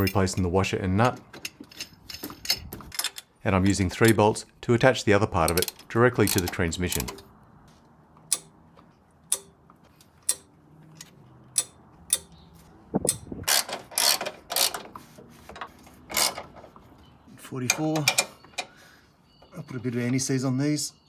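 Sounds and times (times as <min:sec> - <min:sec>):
socket ratchet clicking: 0:08.3 - 0:08.6, 0:09.3 - 0:09.6, 0:10.2 - 0:10.5, 0:11.5 - 0:12.4, 0:13.0 - 0:14.8.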